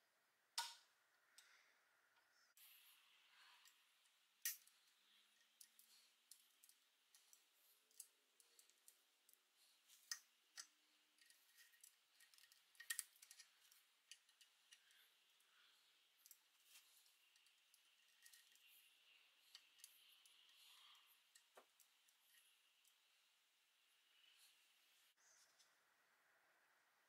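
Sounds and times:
faint clicks and metal taps: 0.6 - 2.3, 3.4 - 23.2.

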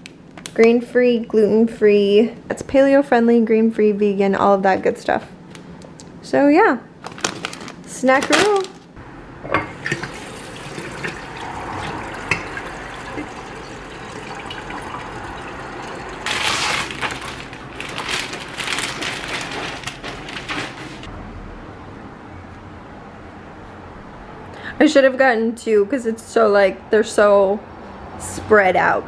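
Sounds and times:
faucet water filling a glass: 9.8 - 16.3.

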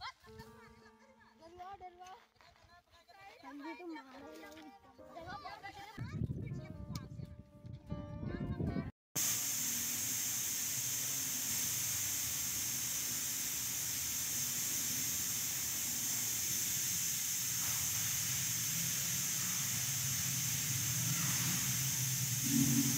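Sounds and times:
high-pitched hiss: 9.2 - 22.9.

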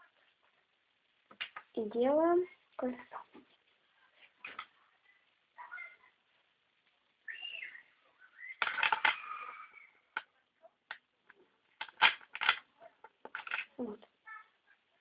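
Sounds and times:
magnet balls clicking together: 8.5 - 9.5, 11.8 - 13.8.

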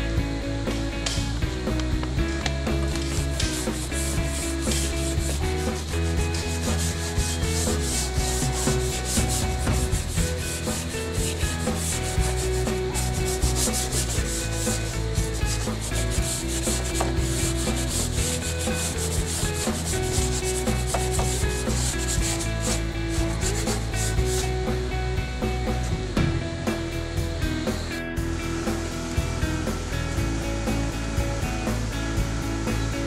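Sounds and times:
sanding metal by hand: 2.7 - 24.9.

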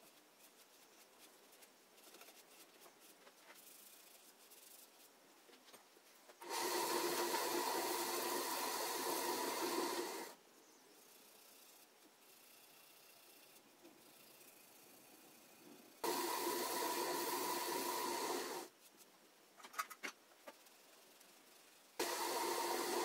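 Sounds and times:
rubbing and handling wood: 0.0 - 7.5.

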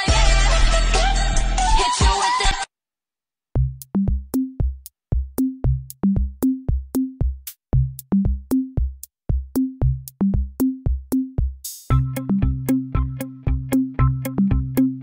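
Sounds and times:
drum machine bass drum beat: 3.6 - 15.0.

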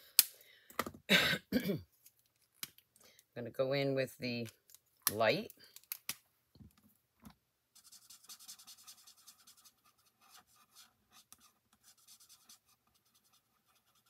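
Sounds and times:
marker scratching on cardstock: 7.8 - 14.0.

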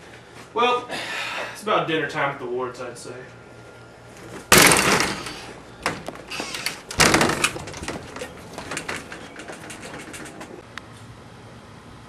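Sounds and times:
storm door banging shut: 4.5 - 10.6.

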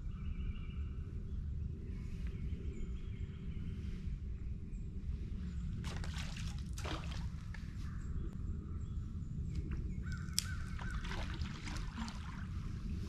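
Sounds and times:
steady low rumble: 0.0 - 13.0
birds calling harshly: 9.5 - 12.4.

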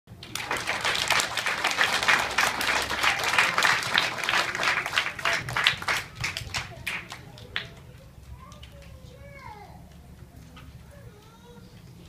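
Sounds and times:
audience applauding: 0.1 - 7.9.

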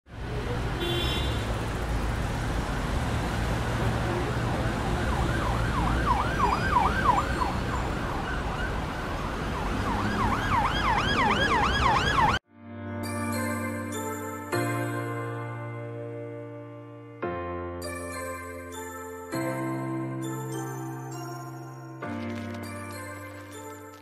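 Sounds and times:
street traffic rumble: 0.1 - 12.4
emergency siren yelping: 4.5 - 12.4.

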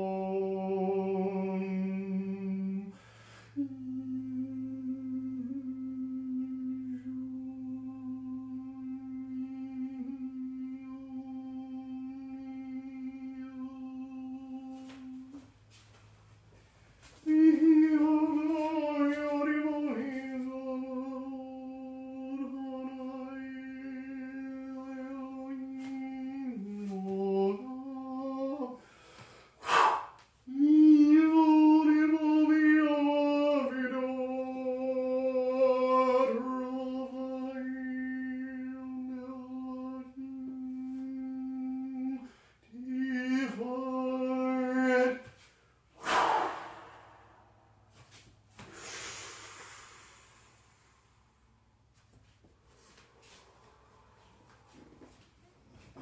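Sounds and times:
sharp intake of breath: 3.0 - 3.6, 28.8 - 30.2, 46.0 - 47.8, 48.6 - 51.4.

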